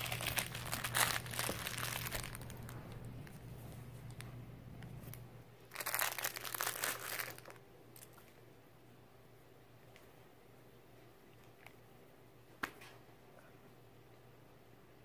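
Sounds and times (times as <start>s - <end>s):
umbrella canopy rustling: 0.0s - 3.4s
faint low hum: 0.0s - 15.0s.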